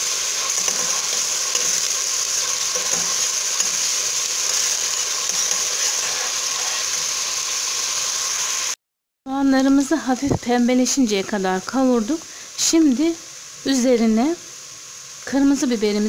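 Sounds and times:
metal spoon stirring: 0:00.0 - 0:07.3
onions sizzling in oil: 0:00.0 - 0:16.0.

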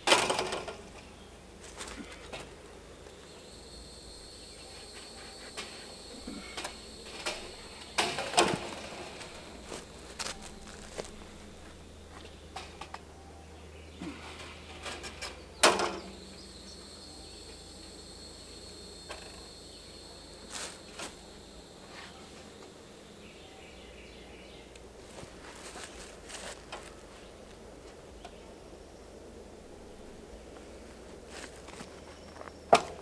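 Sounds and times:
insects droning: 0:00.0 - 0:33.0.

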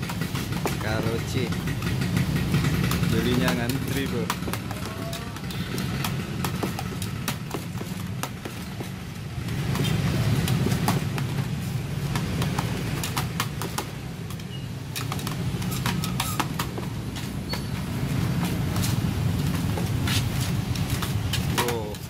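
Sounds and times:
metal blade chopping dough on tray: 0:00.0 - 0:14.2
street traffic hum: 0:00.0 - 0:22.0.

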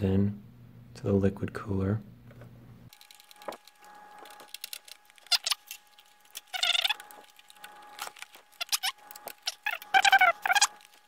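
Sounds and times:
short squeaks: 0:05.1 - 0:11.0.

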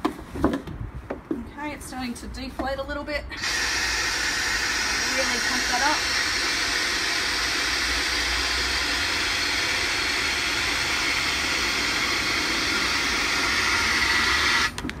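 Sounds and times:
compressed air hissing: 0:03.3 - 0:14.8.

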